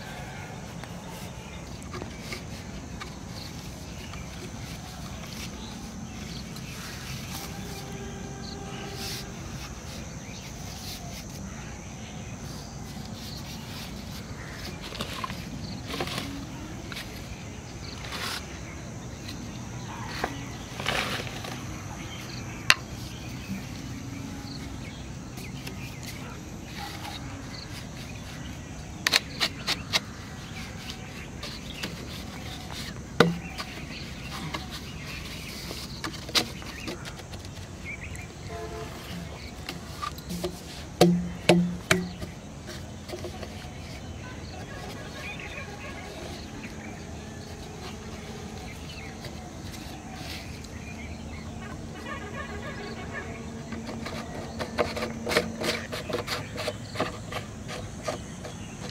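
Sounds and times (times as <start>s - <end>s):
outdoor background noise: 0.0s - 58.9s.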